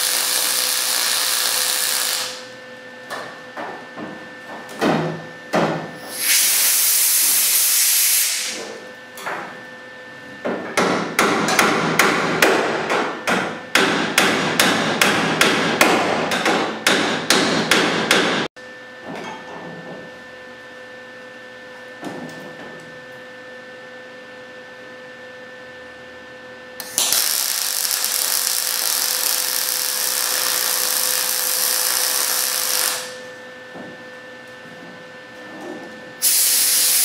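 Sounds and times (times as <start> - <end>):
welder sizzling: 0.0 - 2.5, 6.0 - 8.6, 26.8 - 33.2, 36.2 - 37.0
hammer tapping on sheet metal: 10.6 - 18.5.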